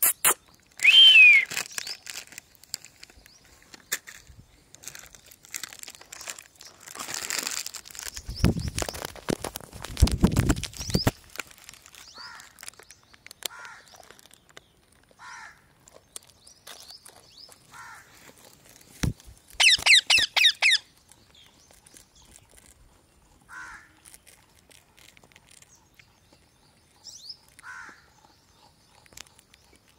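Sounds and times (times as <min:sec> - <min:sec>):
shrill parakeet screeches: 0:19.6 - 0:20.8
parakeet calling: 0:19.6 - 0:20.9.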